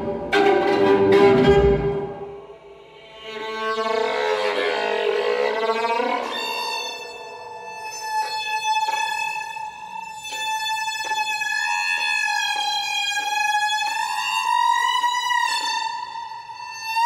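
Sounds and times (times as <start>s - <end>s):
violin long high note: 0.0s - 8.0s.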